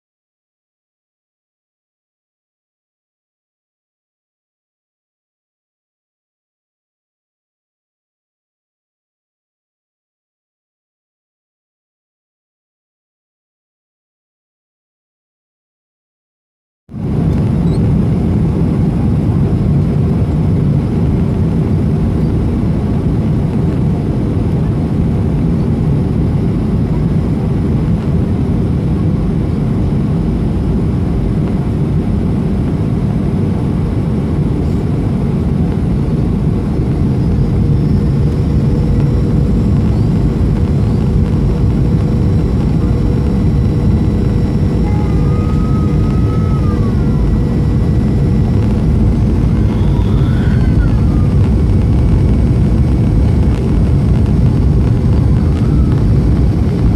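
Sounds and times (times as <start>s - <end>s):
aircraft engine and airflow rumble: 16.9s - 56.9s
faint steady whine: 17.0s - 56.9s.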